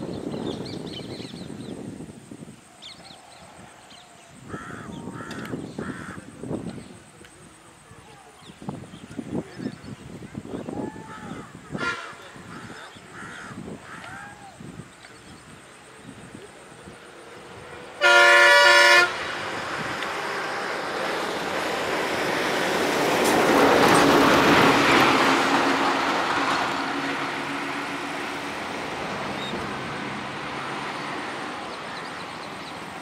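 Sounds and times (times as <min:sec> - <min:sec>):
vehicle horn: 0:11.7 - 0:12.4, 0:18.0 - 0:19.3
vehicle passing: 0:19.0 - 0:33.0.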